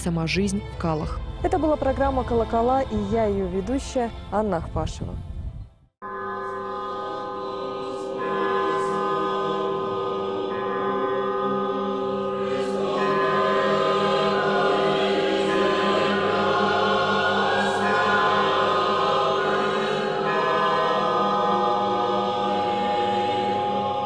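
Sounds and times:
choir chanting held chords: 6.1 - 24.0.

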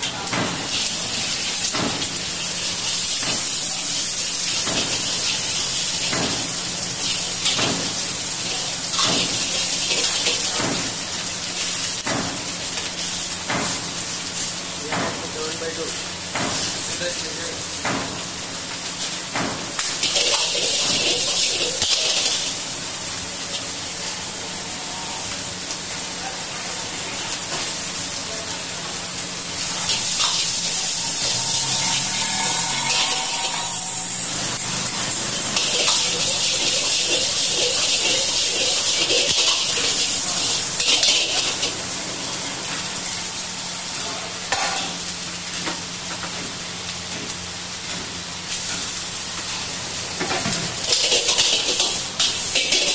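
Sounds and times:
food sizzling in a wok: 0.0 - 52.9
metal ladle stirring in wok: 35.4 - 41.7, 50.8 - 52.9.

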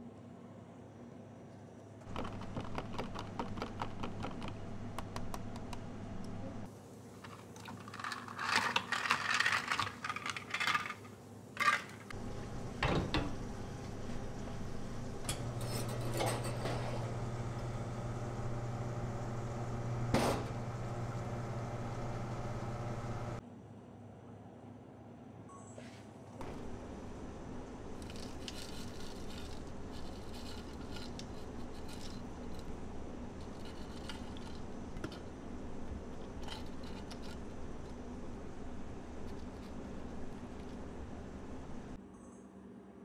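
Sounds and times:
low hum with fast clicking: 1.5 - 6.7, 12.1 - 23.4
espresso machine humming: 12.1 - 23.4, 26.4 - 42.0.

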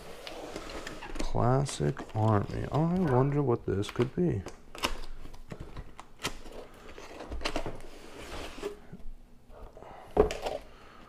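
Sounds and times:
box lid sliding open: 7.8 - 9.0.

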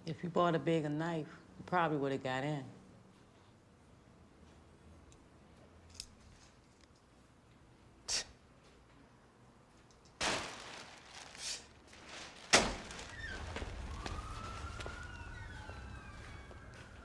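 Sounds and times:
low street rumble: 10.4 - 17.0
siren wailing: 13.0 - 17.0.

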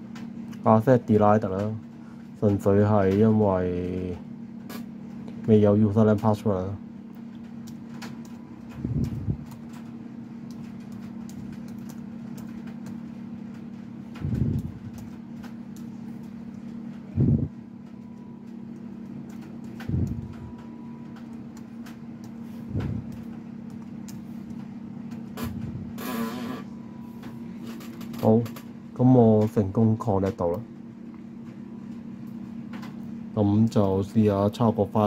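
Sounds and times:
steady low hum: 0.0 - 35.0
computer keys clicking: 7.1 - 16.8, 17.8 - 22.4, 23.0 - 25.4.

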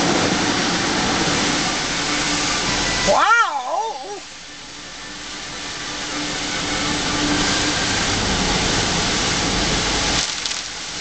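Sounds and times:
car driving through heavy rain: 0.0 - 11.0.

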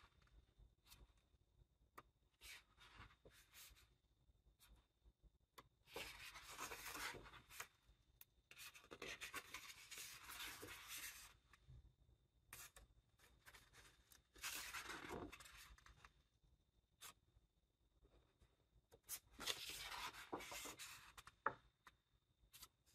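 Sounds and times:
book pages turning: 5.9 - 7.7, 8.6 - 11.4, 13.4 - 16.0, 19.1 - 21.6.

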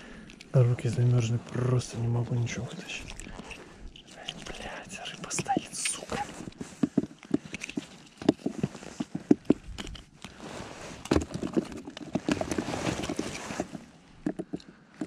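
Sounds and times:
handling knocks and clicks: 3.0 - 10.4, 11.0 - 15.0
rustling of padded suit: 10.3 - 11.3, 12.2 - 14.0.

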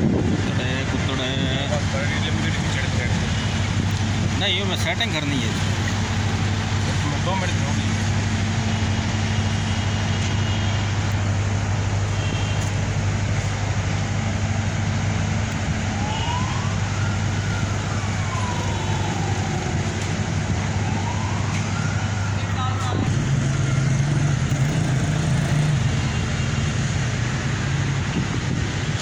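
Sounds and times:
low rumble of traffic: 0.0 - 29.0
distant siren wailing: 4.9 - 24.5.

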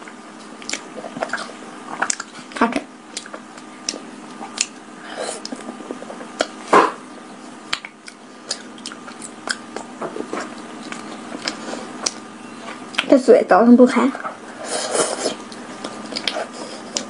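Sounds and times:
close-miked chewing: 0.1 - 6.6, 7.4 - 13.2, 14.2 - 17.0
wet mouth clicks and smacks: 0.6 - 1.4, 2.0 - 2.4, 3.1 - 4.8, 7.7 - 9.9, 15.4 - 16.4.

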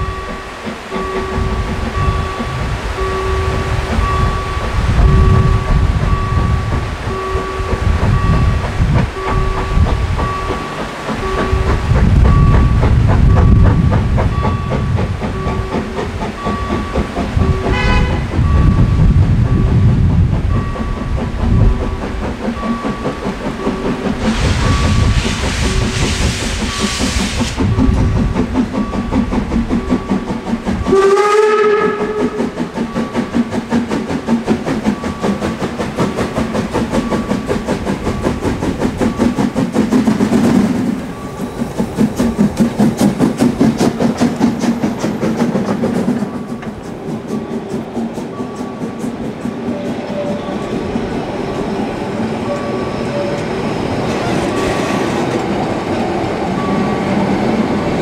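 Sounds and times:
level-crossing bell dinging: 0.0 - 19.9, 20.5 - 26.0, 40.9 - 42.1, 49.8 - 55.8, 56.5 - 57.7
steam hissing: 0.0 - 58.0
steam locomotive chuffing: 0.0 - 58.0
steam whistle: 17.6 - 18.6, 30.8 - 32.6, 54.1 - 55.4.

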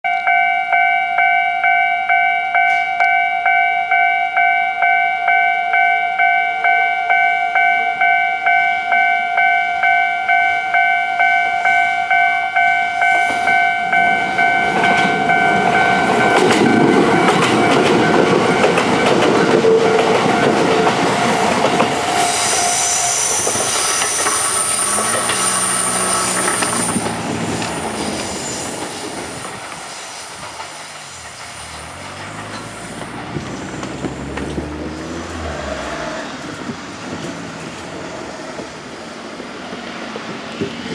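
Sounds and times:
level crossing alarm bell: 0.1 - 19.3
high train whine: 0.1 - 40.9
train wheels running: 11.5 - 40.9.

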